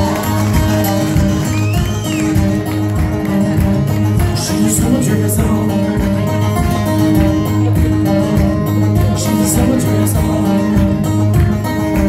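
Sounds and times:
second guitar: 0.0s - 12.0s
steady bass line: 0.0s - 12.0s
strummed acoustic guitar: 0.0s - 12.0s
person singing: 4.2s - 12.0s.

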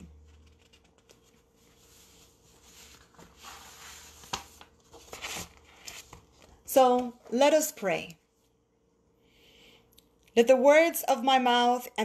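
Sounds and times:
faint rustling and handling noise: 0.0s - 8.6s.

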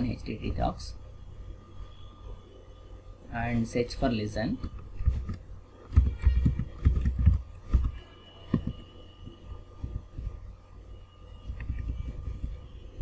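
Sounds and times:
faint electrical hum: 0.0s - 13.0s
keyboard typing and mouse clicks: 4.6s - 10.2s, 11.4s - 12.6s.

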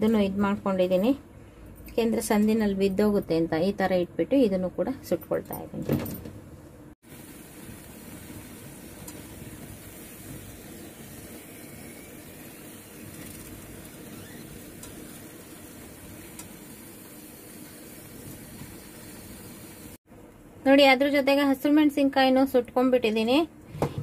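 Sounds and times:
gas burner hissing: 7.0s - 20.0s.

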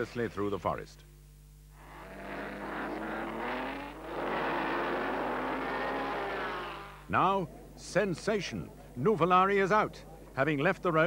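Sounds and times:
racing cars passing at high revs: 1.8s - 7.1s.

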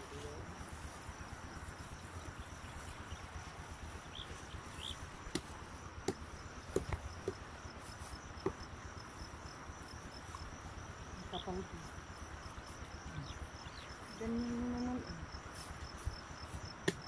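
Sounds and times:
insects chirring: 0.0s - 17.0s
dry grass rustling and snapping: 2.8s - 7.5s
sharp clicks of grass stalks: 3.8s - 7.5s.

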